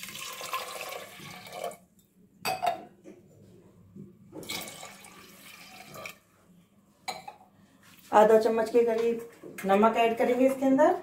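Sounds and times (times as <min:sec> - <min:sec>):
water pouring into a pan: 0:00.0 - 0:01.8, 0:04.4 - 0:06.2.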